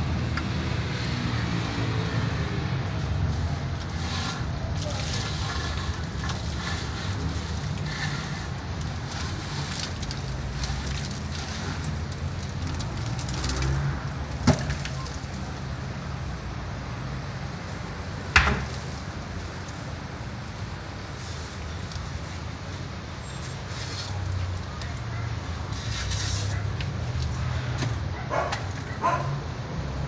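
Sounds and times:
sharp knocks: 18.3 - 18.8.

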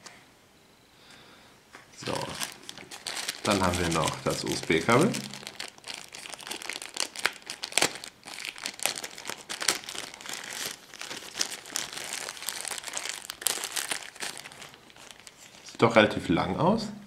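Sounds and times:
plastic bag crinkling: 2.0 - 15.8.

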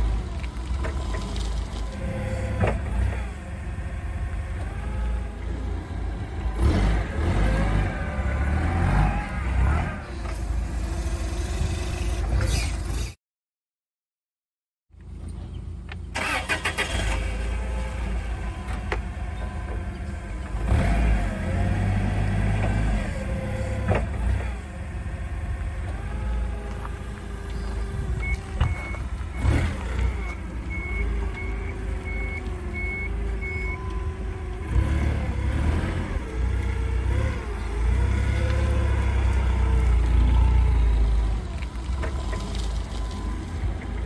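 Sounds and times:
forklift engine revving: 0.0 - 13.2, 16.1 - 44.0
reversing alarm beeps: 28.2 - 34.0.

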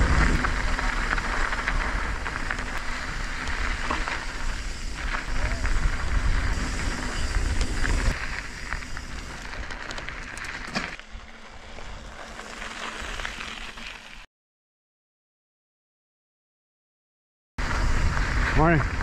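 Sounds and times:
wind buffeting microphone: 0.0 - 9.6
bike clicks and rattles: 0.0 - 14.2
tyres rolling over gravel: 0.0 - 14.2.

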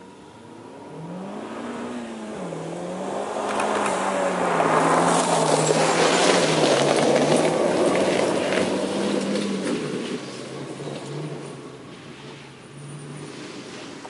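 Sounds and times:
car engine under throttle: 0.0 - 14.0
stones crackling under tyres: 3.4 - 11.7.

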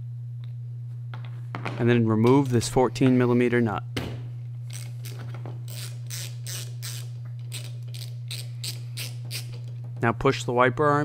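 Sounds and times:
steady low hum: 0.0 - 11.0
ratchet wrench clicking: 4.7 - 9.7.

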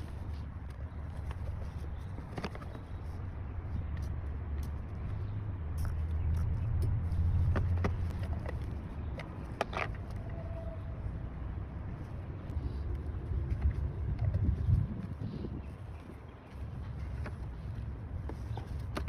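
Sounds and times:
steady low rumble: 0.0 - 18.8.

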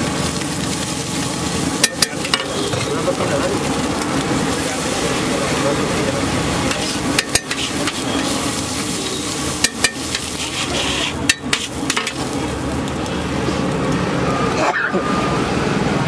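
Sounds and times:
egg mixture sizzling: 0.0 - 14.6
metal spatula scraping griddle: 1.8 - 3.6, 4.4 - 12.4.

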